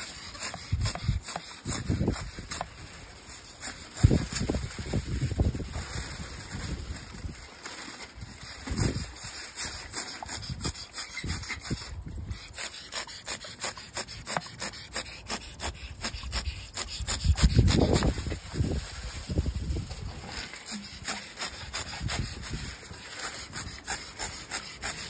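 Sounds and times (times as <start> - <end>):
pump sprayer spritzing: 0.0 - 4.5, 8.4 - 18.2, 20.2 - 25.0.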